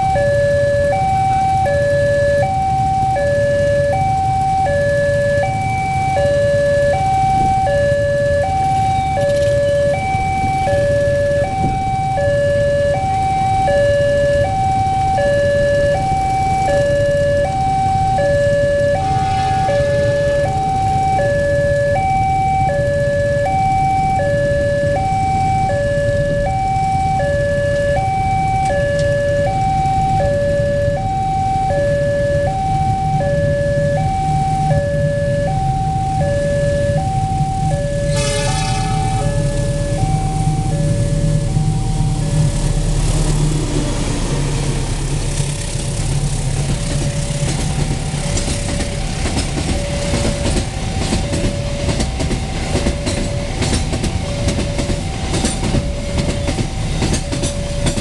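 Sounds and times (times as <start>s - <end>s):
two-tone crossing alarm: 0.0s - 58.0s
low rumble: 17.0s - 21.8s.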